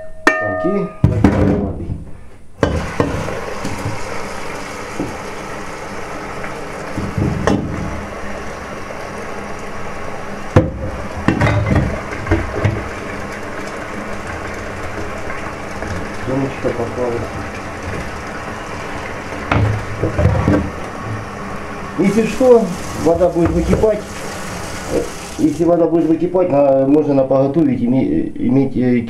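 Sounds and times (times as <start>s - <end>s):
pot knocking against metal sink: 0.0s - 1.8s, 2.6s - 4.0s, 6.9s - 8.0s, 10.6s - 13.0s, 19.4s - 20.8s, 23.4s - 24.0s
tap water filling a pot: 2.6s - 26.1s.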